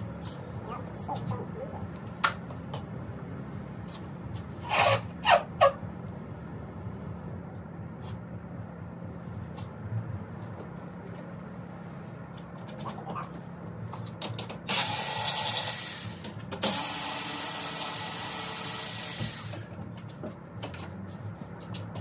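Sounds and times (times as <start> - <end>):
steady low hum: 0.0 - 14.7.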